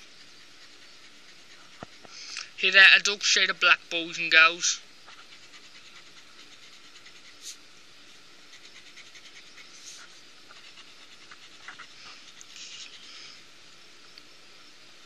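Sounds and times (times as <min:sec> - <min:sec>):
pencil scratching on paper: 0:00.0 - 0:02.1, 0:05.0 - 0:07.6, 0:08.5 - 0:13.1.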